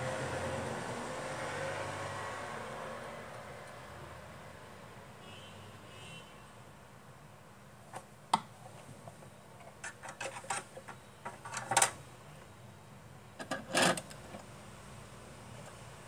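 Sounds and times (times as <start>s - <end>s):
rubbing and scraping: 9.8s - 11.7s.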